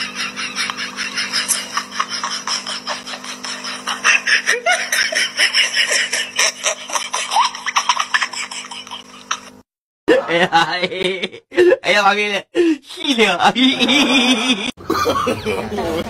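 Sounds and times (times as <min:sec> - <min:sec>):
person laughing hard: 0:00.0 - 0:11.8, 0:13.0 - 0:16.0.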